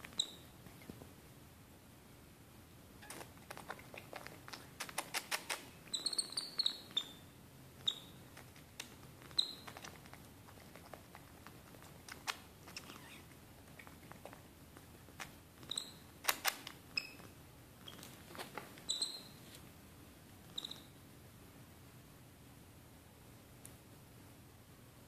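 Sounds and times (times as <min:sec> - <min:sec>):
high-pitched animal squeaks: 0:00.1 - 0:00.5, 0:05.9 - 0:07.2, 0:07.8 - 0:08.2, 0:09.3 - 0:09.8, 0:12.8 - 0:13.3, 0:15.7 - 0:16.0, 0:18.9 - 0:19.4, 0:20.6 - 0:20.9.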